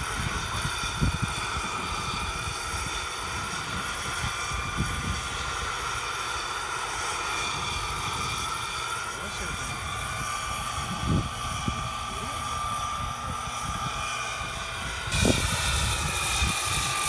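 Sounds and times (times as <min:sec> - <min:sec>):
low gusty rotor rumble: 0:00.0 - 0:17.0
model helicopter turbine whine: 0:00.0 - 0:17.0.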